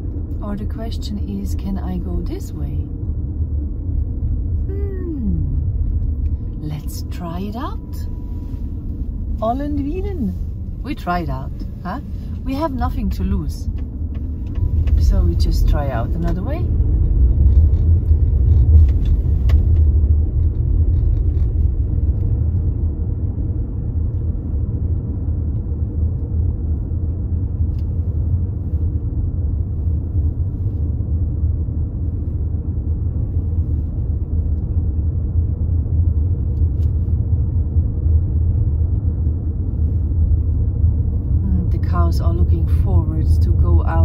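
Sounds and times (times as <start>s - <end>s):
car driving rumble inside cabin: 0.0s - 44.0s.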